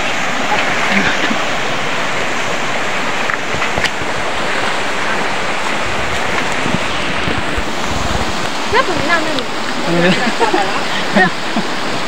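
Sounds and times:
stream water rushing: 0.0s - 12.0s.

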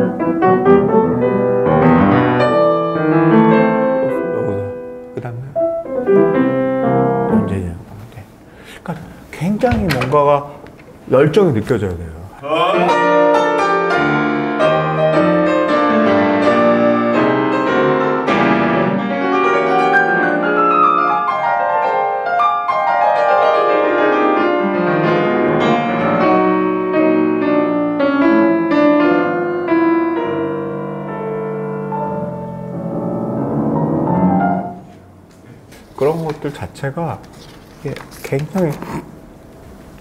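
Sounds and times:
grand piano fast chords and runs: 0.0s - 7.8s, 12.9s - 35.2s.

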